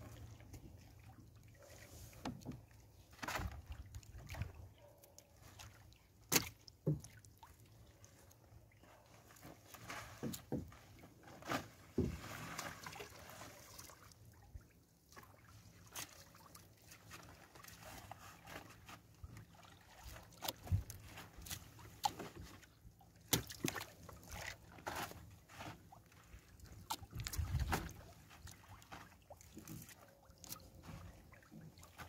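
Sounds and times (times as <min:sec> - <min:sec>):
water dripping and splashing: 0:00.0 - 0:08.7, 0:12.0 - 0:18.1, 0:19.2 - 0:24.8, 0:26.0 - 0:32.0.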